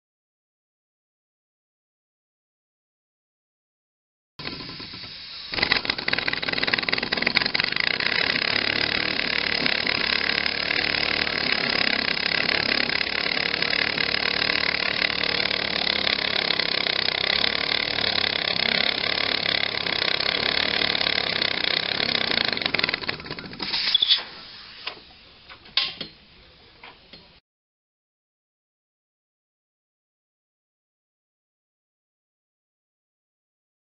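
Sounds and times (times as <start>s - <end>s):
model steam engine running: 4.4s - 23.7s.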